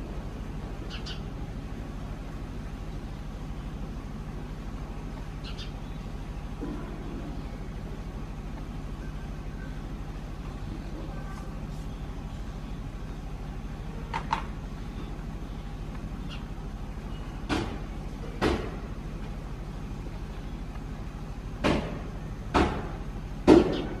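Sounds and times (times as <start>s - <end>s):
low mechanical hum: 0.0s - 24.0s.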